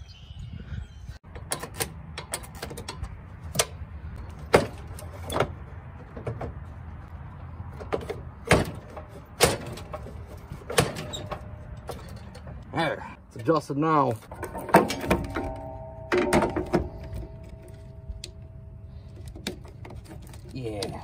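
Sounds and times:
low steady hum: 0:14.2 - 0:20.5.

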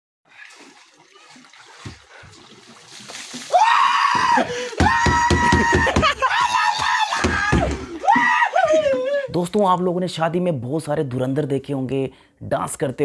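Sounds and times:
water splashing in plastic tank: 0:00.3 - 0:08.8
rapid knocks: 0:04.8 - 0:06.2, 0:07.2 - 0:07.9.

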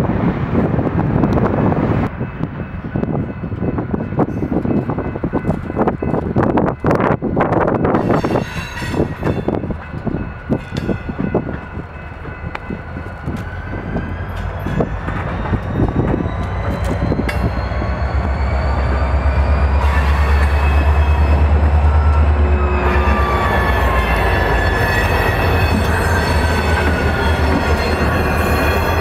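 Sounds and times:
diesel locomotive engine rumble: 0:00.0 - 0:29.0
train wheels clanking: 0:07.9 - 0:29.0.

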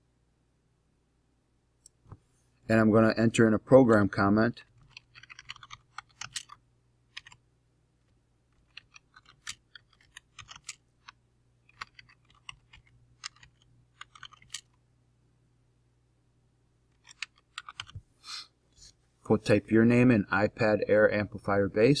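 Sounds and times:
keyboard typing: 0:04.6 - 0:07.4, 0:08.5 - 0:14.8, 0:16.9 - 0:18.0.

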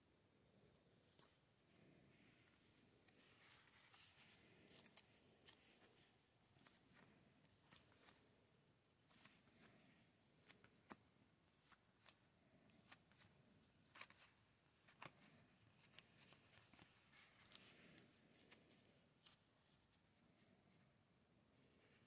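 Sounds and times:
card sleeves clicking and rustling: 0:11.6 - 0:19.4.

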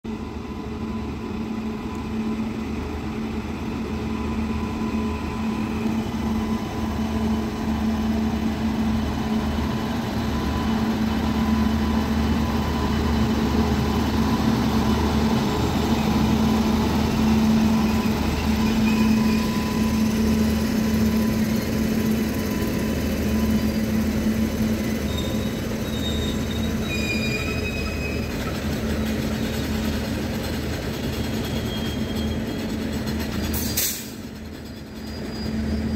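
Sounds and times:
electric locomotive passing: 0:00.1 - 0:35.9
high wheel squeaks: 0:04.1 - 0:35.9
freight wagons rolling over rails: 0:22.6 - 0:35.9.

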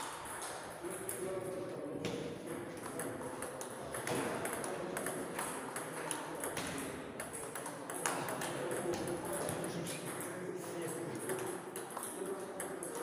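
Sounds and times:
table tennis balls clicking: 0:02.8 - 0:13.0.

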